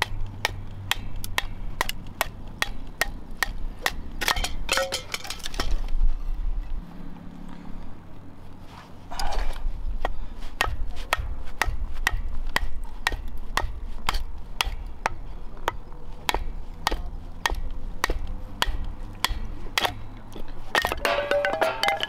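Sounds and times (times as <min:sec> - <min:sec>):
wooden baton striking knife: 0:10.6 - 0:20.0, 0:20.7 - 0:22.0.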